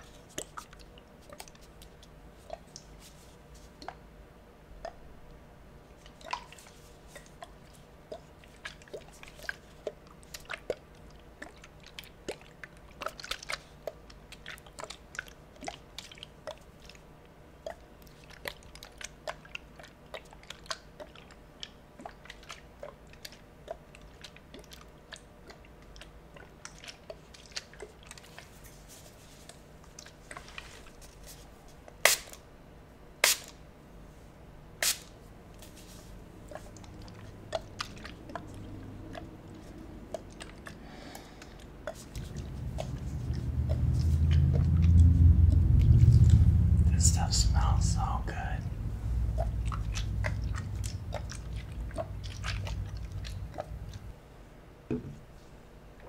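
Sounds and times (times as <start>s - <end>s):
spray bottle crackles and squishes: 32.0s - 32.4s, 33.2s - 33.6s, 34.8s - 36.2s.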